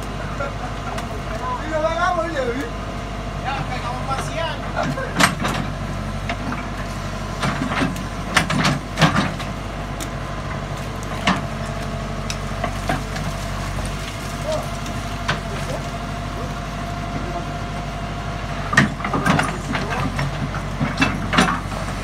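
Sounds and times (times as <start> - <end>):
backhoe diesel engine running: 0.0 - 22.0
sharp knocks and clanks: 7.4 - 9.5, 18.7 - 21.8.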